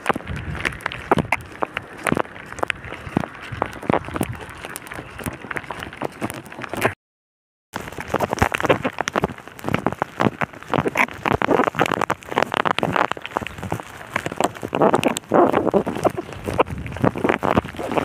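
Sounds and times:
rain falling on a wet road: 0.0s - 7.0s, 7.8s - 18.0s
sharp raindrop hits: 7.8s - 18.0s.

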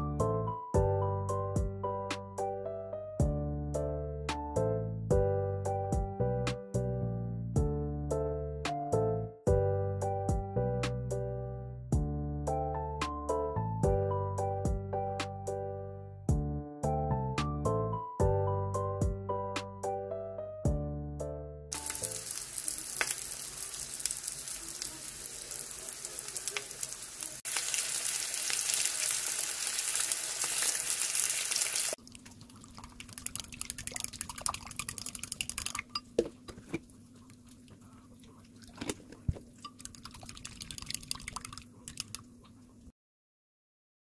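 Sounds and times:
patties sizzling in frying pan: 21.7s - 32.0s
utensil stirring eggs in glass bowl: 32.4s - 42.2s.

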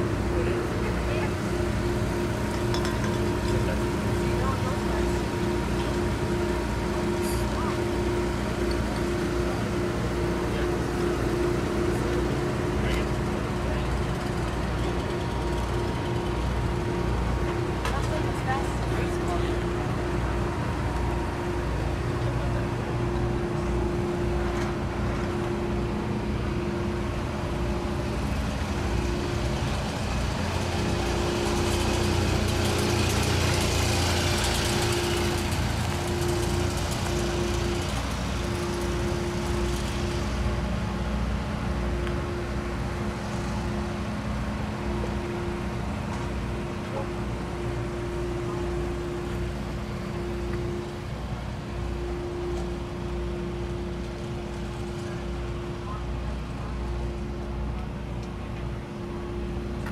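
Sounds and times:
engine drone: 0.0s - 59.9s
held humming tone: 0.0s - 59.9s.

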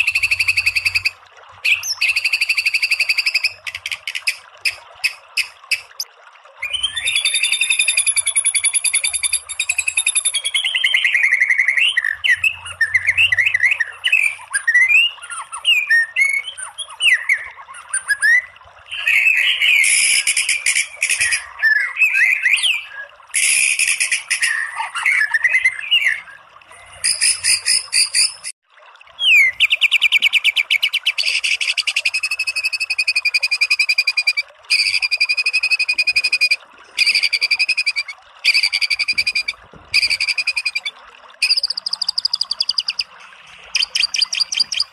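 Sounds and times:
songbird singing: 6.6s - 28.5s, 33.5s - 44.9s.

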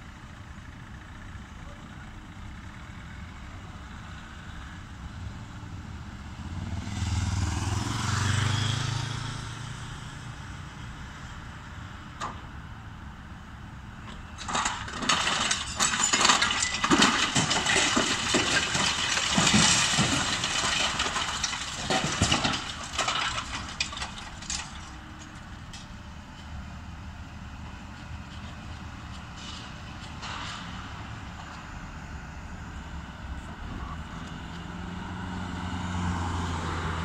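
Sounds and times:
concrete cracking and breaking: 14.3s - 25.4s.

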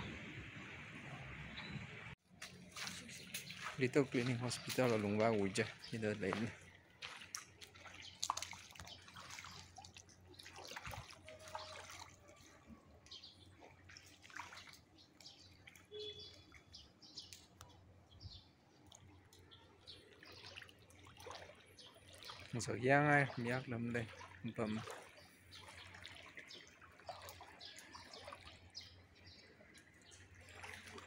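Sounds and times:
water splashes and drips: 0.0s - 31.0s
bird chirps: 15.2s - 18.6s.

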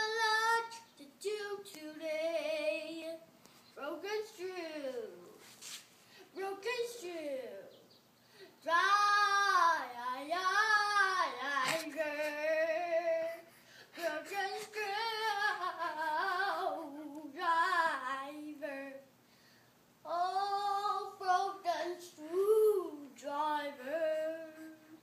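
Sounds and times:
boy singing loudly: 8.6s - 13.4s.

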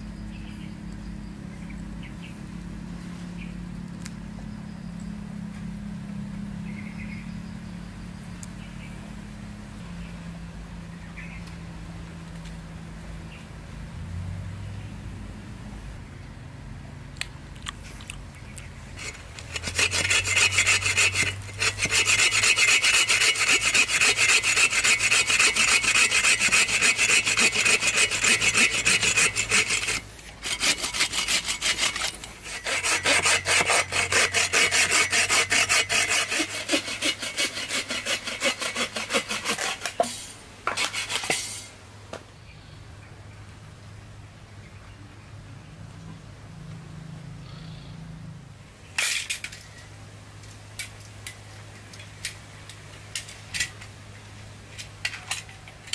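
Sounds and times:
bow saw cutting a log: 19.0s - 41.7s.

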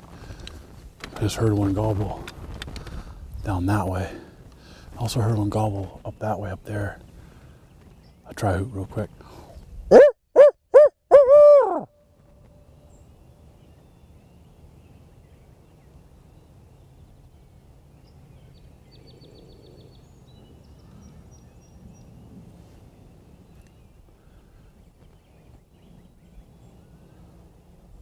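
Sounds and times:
faint distant bird chirps: 0.1s - 28.0s
man hooting like an owl: 10.0s - 11.9s.

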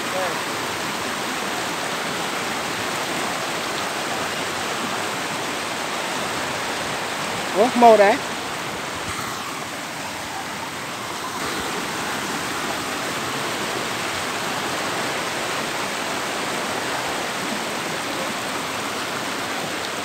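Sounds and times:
stream water rushing: 0.0s - 20.0s.

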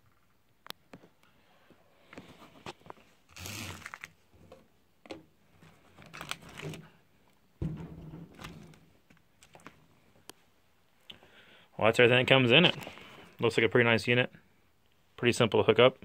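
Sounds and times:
plastic bags crinkling: 3.3s - 4.2s, 5.6s - 7.0s.

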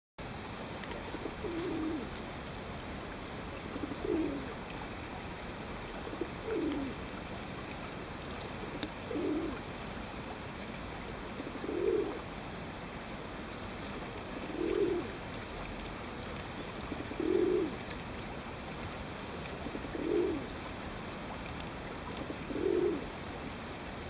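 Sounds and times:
dove cooing: 1.0s - 2.2s, 3.6s - 4.6s, 6.0s - 7.0s, 8.2s - 9.7s, 11.4s - 12.3s, 14.3s - 15.2s, 16.7s - 17.8s, 19.5s - 20.5s, 22.1s - 23.2s.

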